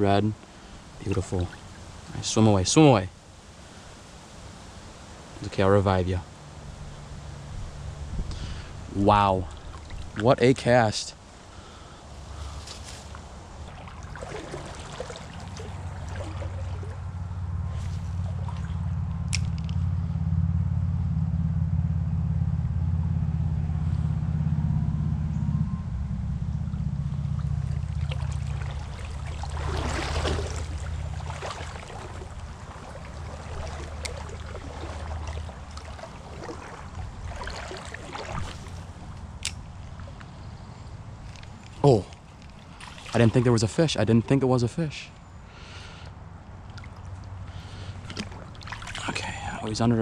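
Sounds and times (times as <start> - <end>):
stream trickling and gurgling: 0.0 - 19.9, 26.5 - 50.0
low rumble: 15.4 - 41.7.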